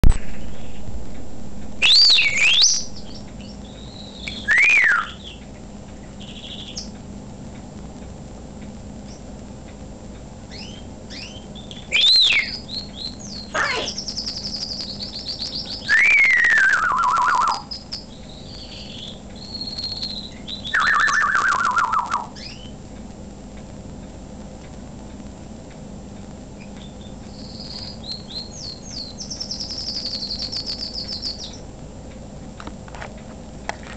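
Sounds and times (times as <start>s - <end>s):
parrot whistling: 1.8s - 5.4s, 10.5s - 22.7s, 26.8s - 31.6s.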